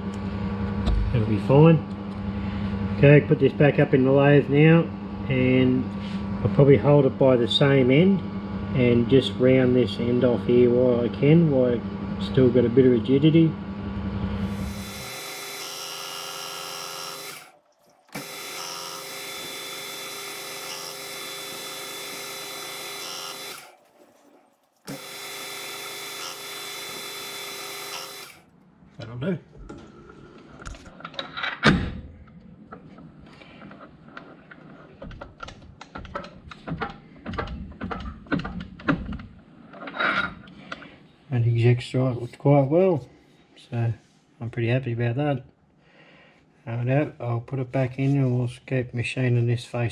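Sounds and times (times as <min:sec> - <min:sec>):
lathe motor whine: 0:14.3 - 0:28.4.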